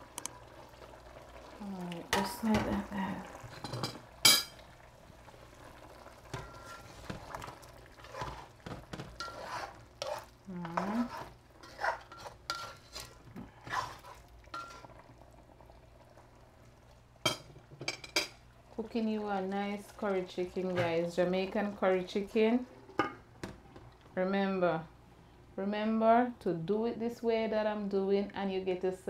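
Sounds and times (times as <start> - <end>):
spoon scraping metal pot: 6.3 - 7.2, 8.0 - 14.9.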